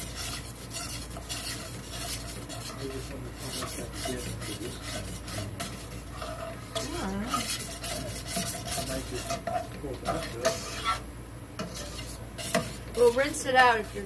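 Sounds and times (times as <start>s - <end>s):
metal fork scraping a skillet: 0.0s - 14.0s.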